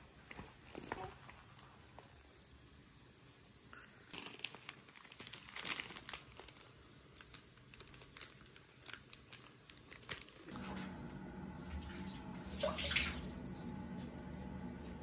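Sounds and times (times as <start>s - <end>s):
plastic and vinyl crinkling: 3.7s - 10.9s.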